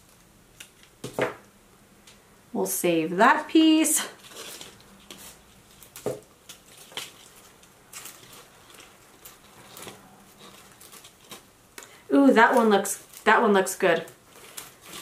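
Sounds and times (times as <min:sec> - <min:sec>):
dry leaves rustling and crackling: 0:04.2 - 0:11.5, 0:12.4 - 0:15.0.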